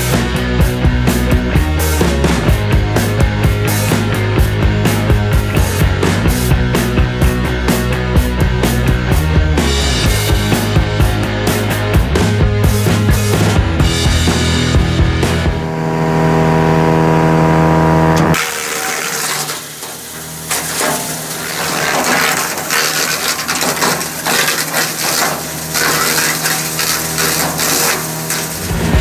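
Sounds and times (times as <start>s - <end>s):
tractor engine running: 0.0s - 18.4s, 19.7s - 29.0s
shredder chopping branches: 18.0s - 29.0s.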